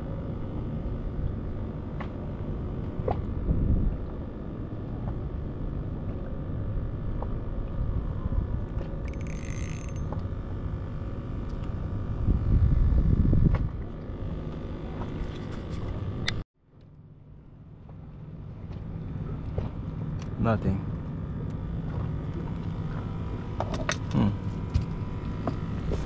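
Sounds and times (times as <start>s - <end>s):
water against boat hull: 0.3s - 16.4s, 17.6s - 26.0s
wind on microphone: 3.2s - 4.4s, 11.9s - 16.4s
small clicks: 9.0s - 10.3s.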